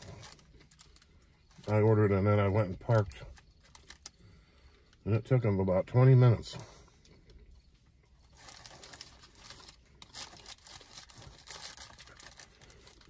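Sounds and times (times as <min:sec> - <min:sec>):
paper packaging crinkling: 0:00.0 - 0:01.8, 0:02.9 - 0:04.1, 0:08.2 - 0:13.0.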